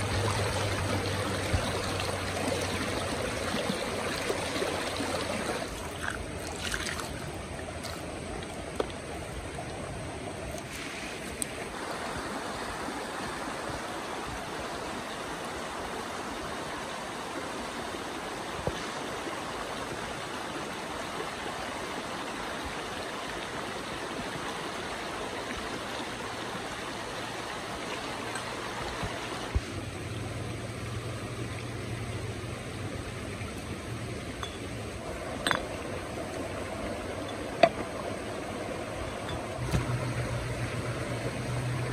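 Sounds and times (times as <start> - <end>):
stream rushing over stones: 0.0 - 41.9
sharp clicks and knocks: 37.6 - 37.9.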